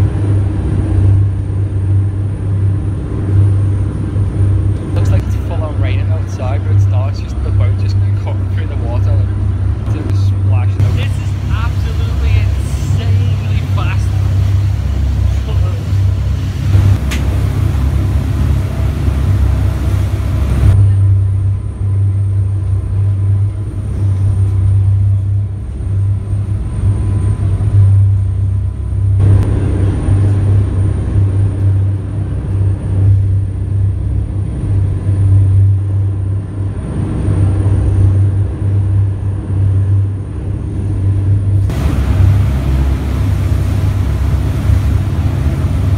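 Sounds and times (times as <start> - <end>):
ferry engines droning: 0.0 - 45.9
rushing wind: 0.0 - 45.9
wake water: 4.4 - 20.9, 41.7 - 45.9.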